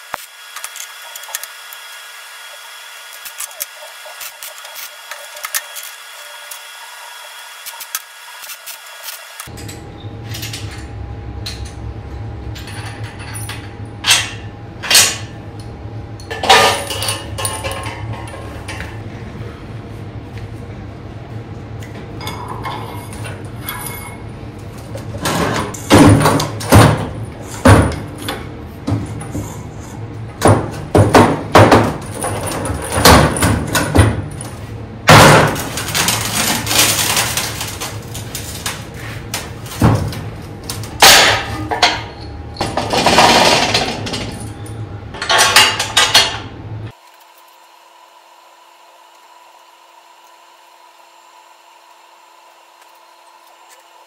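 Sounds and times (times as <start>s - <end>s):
steady low hum: 9.4s - 47.0s
steel parts clanking: 35.3s - 46.5s.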